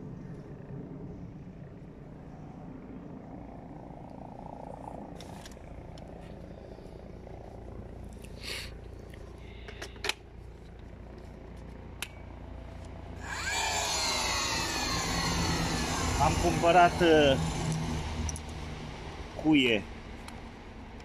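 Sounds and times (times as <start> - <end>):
rushing noise with sweeping pitch: 13.2 - 20.8.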